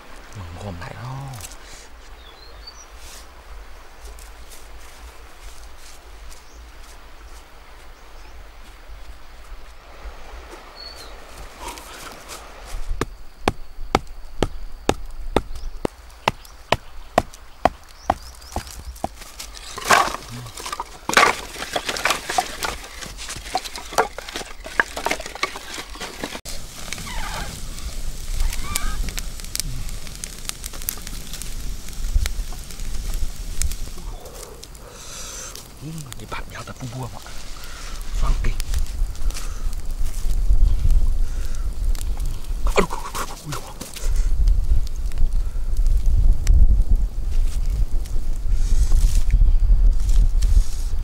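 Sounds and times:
rustling: 0:08.6 - 0:45.0
sharp wooden knocks of firewood: 0:13.0 - 0:26.4.

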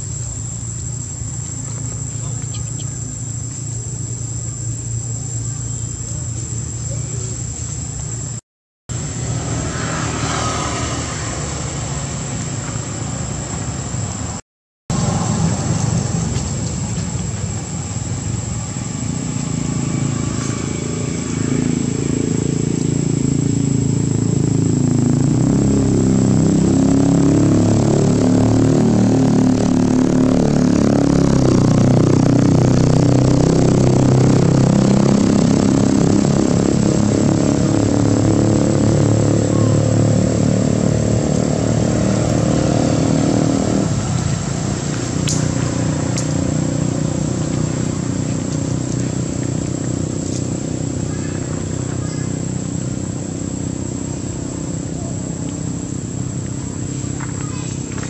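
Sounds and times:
engine droning: 0:00.0 - 0:58.0.

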